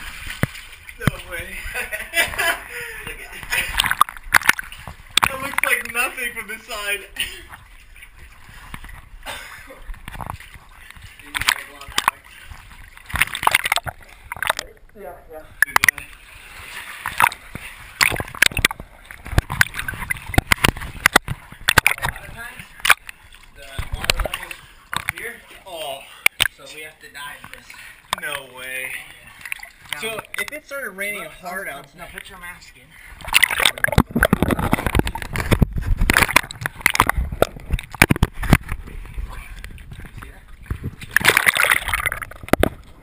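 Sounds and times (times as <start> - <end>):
swimmers splashing: 0.0 - 14.6, 15.5 - 40.1, 40.9 - 43.0
moving water wash: 0.0 - 14.8, 15.5 - 43.0
sharp knocks and clicks: 33.3 - 38.8.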